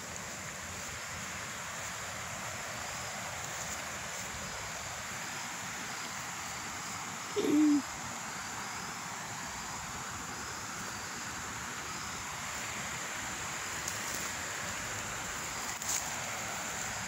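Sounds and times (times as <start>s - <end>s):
river flowing: 0.0s - 17.0s
low cooing note: 7.4s - 7.8s.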